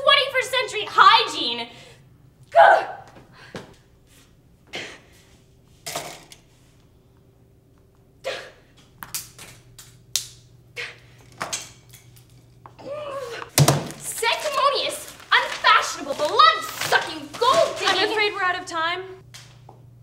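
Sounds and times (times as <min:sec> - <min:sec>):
woman's voice: 0:00.0 - 0:01.8, 0:14.0 - 0:19.2
cloth rustling: 0:13.9 - 0:18.4.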